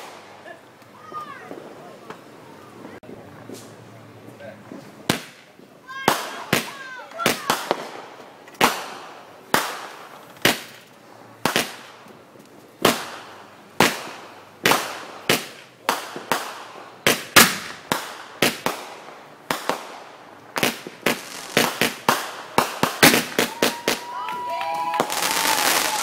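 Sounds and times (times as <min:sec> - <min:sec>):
fireworks bangs and cracks: 0:00.0 - 0:03.9, 0:04.6 - 0:26.0.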